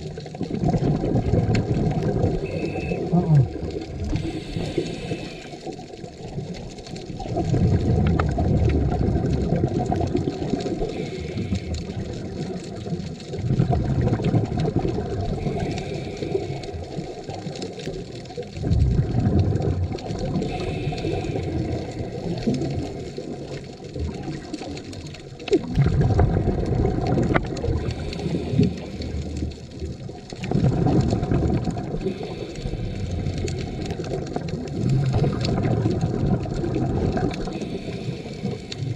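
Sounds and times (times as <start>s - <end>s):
bubbly exhalation underwater: 0.0s - 38.9s
regulator inhalation hiss: 4.2s - 5.7s, 10.8s - 11.8s, 15.4s - 16.7s, 20.5s - 22.0s, 27.9s - 29.2s, 32.0s - 33.8s, 37.5s - 38.9s.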